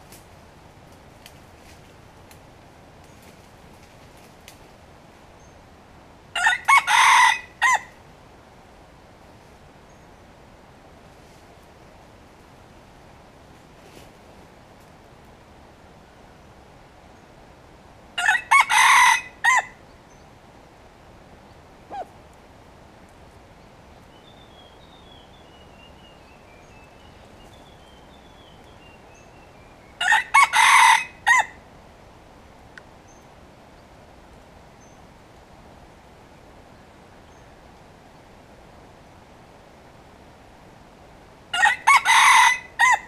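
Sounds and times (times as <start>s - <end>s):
rooster crowing: 6.3s - 7.9s, 18.2s - 19.8s, 30.0s - 31.6s, 41.5s - 43.0s.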